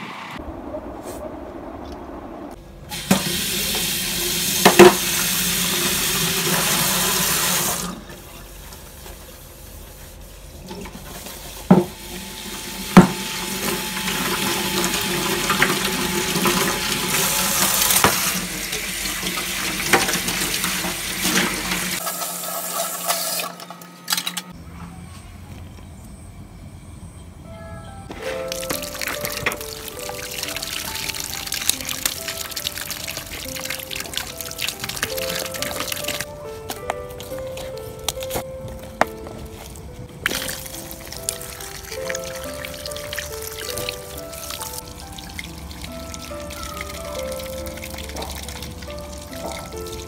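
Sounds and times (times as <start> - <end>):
hands washing in water: 28.2 - 50.0.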